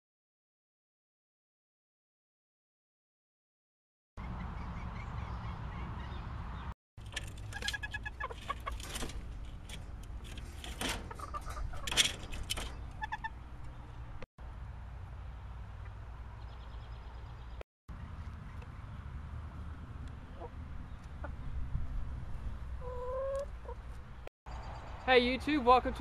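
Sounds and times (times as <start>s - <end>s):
chickens clucking: 7.0s - 14.2s, 20.2s - 21.6s, 22.7s - 24.0s.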